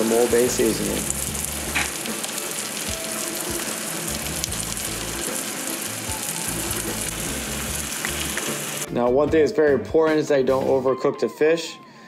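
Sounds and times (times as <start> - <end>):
fish frying in butter: 0.0 - 8.9.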